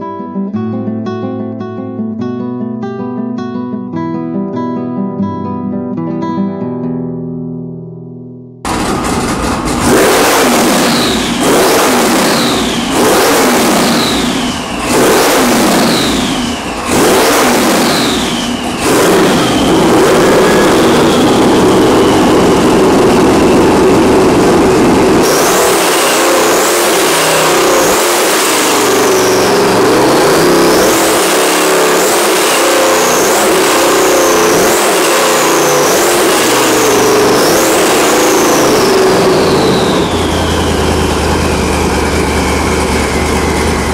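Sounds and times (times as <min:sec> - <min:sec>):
engine revving: 0:08.7 - 0:43.9
turbo whistle: 0:10.0 - 0:23.7, 0:25.2 - 0:41.2.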